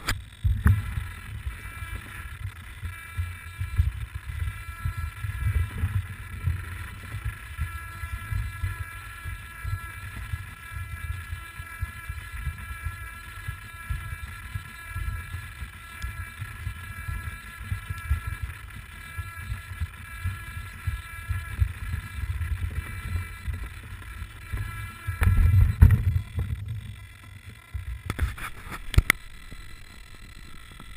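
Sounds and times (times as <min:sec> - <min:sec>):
helicopter motor whine: 0:00.0 - 0:30.9.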